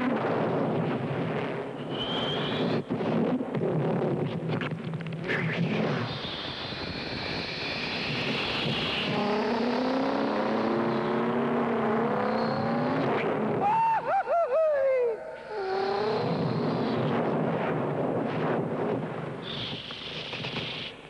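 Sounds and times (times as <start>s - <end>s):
rising pitched whine: 6.0s - 18.4s.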